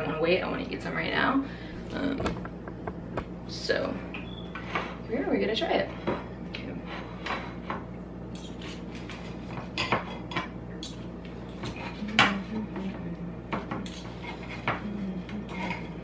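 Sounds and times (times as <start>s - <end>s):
cutlery clinking and scraping a plate: 15.5s - 16.0s.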